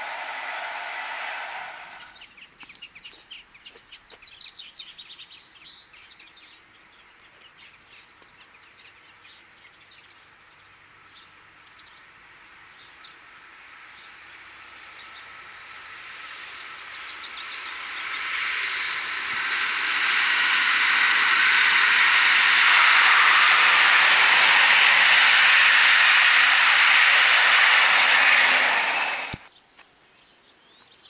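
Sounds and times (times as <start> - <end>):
approaching train rushing: 0.0 - 2.2, 12.2 - 29.5
small birds chirping: 2.0 - 10.2.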